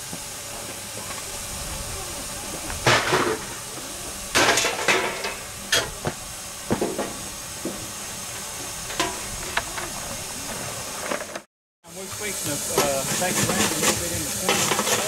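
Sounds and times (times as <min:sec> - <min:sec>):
steam hissing: 0:00.0 - 0:15.0
metallic clanks and scrapes: 0:12.8 - 0:15.0.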